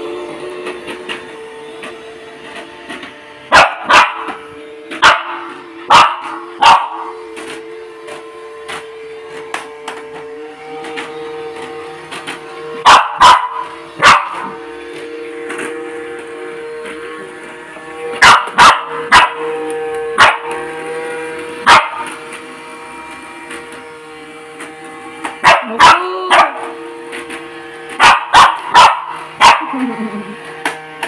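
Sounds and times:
robot vacuum motor humming: 0.0 - 31.0
small dog barking: 3.5 - 4.3, 5.0 - 7.1, 12.8 - 14.5, 18.2 - 19.4, 20.2 - 20.4, 21.7 - 22.0, 25.4 - 26.7, 28.0 - 29.7.

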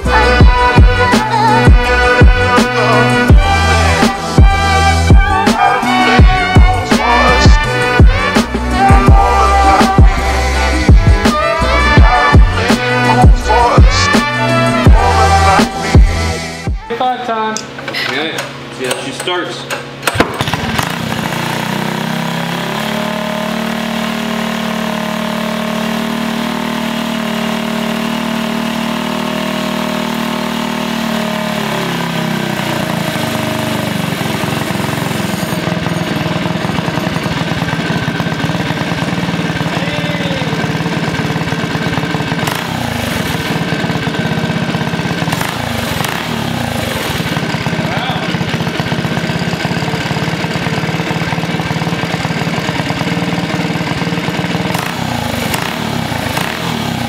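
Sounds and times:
minibike engine running: 0.0 - 57.0.

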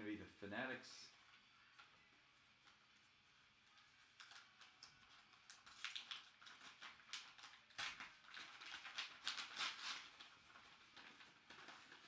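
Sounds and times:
paper envelope crackling and rustling: 3.7 - 12.0.

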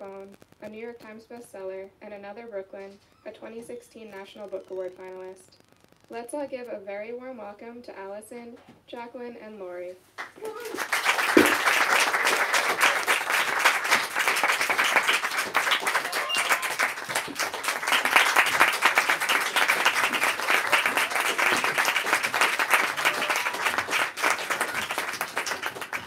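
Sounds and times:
audience applauding: 10.2 - 26.0
people cheering: 10.4 - 26.0.

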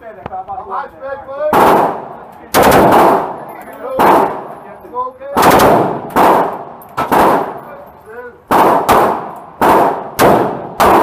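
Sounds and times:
automatic gunfire with echo: 1.6 - 3.4, 4.0 - 4.5, 5.4 - 7.6, 8.5 - 11.0.

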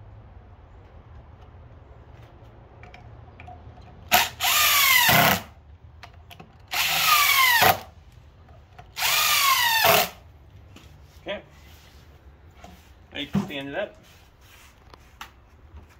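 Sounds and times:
cordless drill driving screws: 4.1 - 5.5, 6.7 - 7.9, 8.9 - 10.2.

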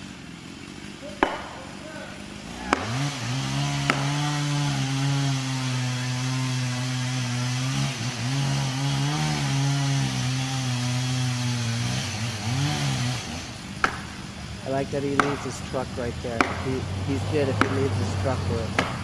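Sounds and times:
chainsaw cutting tree trunk: 0.0 - 19.0
sharp knock: 1.2 - 1.6, 16.4 - 16.7.

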